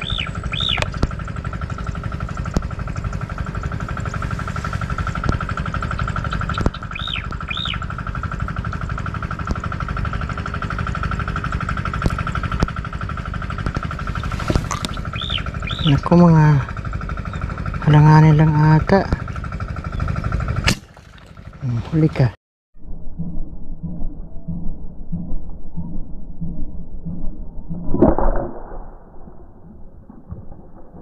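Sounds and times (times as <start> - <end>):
bird chirping: 0.0 - 1.0, 6.0 - 7.8, 14.8 - 16.1
low rumble: 0.0 - 31.0.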